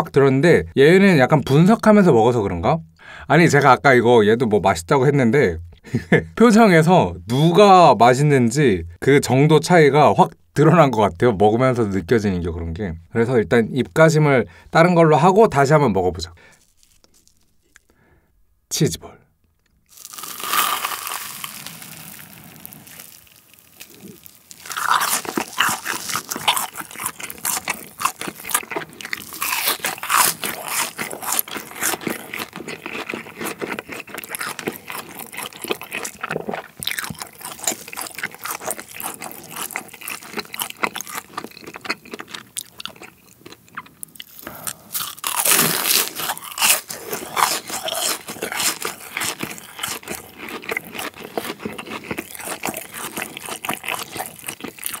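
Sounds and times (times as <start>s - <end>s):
crunchy food being chewed: 16.5s - 18.0s, 19.5s - 55.0s.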